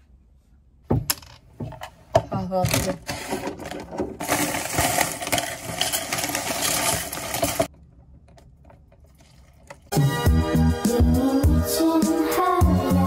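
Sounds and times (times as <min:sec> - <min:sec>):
cereal rattling into plastic cup: 0:02.8 - 0:07.7
music: 0:09.9 - 0:13.0.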